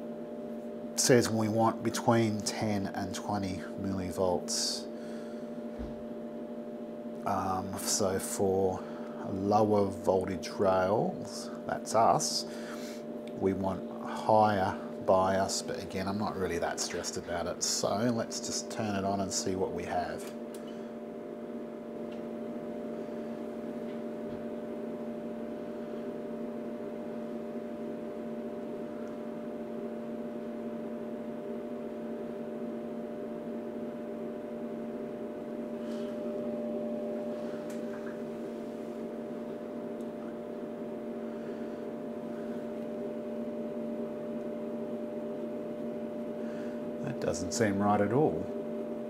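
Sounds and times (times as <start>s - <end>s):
steady electrical hum: 0.0s - 49.0s.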